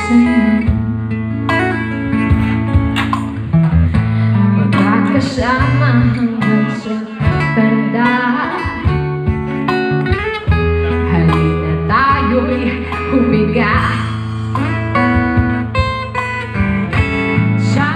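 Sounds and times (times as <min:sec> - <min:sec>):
woman singing: 0:00.0 - 0:01.2, 0:04.3 - 0:09.1, 0:10.9 - 0:14.2, 0:17.3 - 0:17.9
low bass notes: 0:00.0 - 0:08.0, 0:08.6 - 0:17.9
live band with guitar: 0:00.0 - 0:17.9.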